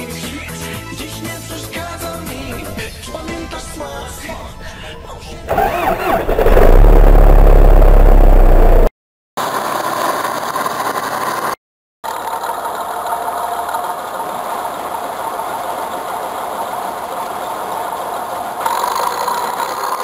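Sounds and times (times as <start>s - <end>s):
combine harvester diesel engine running: 2.3s - 8.9s.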